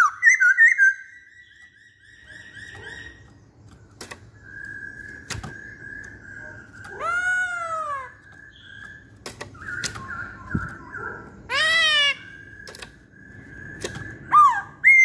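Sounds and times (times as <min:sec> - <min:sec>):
bird whistling and calling: 0:00.0 - 0:03.4, 0:04.2 - 0:15.0
sharp clicks: 0:02.6 - 0:07.0, 0:08.2 - 0:10.9, 0:12.5 - 0:14.3.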